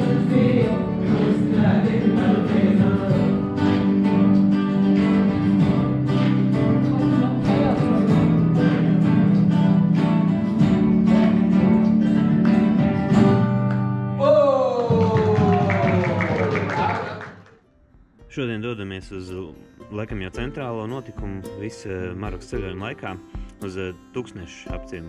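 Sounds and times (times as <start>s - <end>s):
people singing: 0.0s - 4.4s, 5.5s - 12.2s
acoustic guitars strumming: 0.0s - 14.2s, 17.8s - 25.0s.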